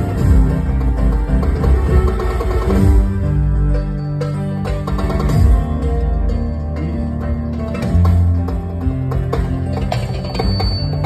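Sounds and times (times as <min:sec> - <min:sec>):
electronic keyboard accompaniment: 0:00.0 - 0:11.0.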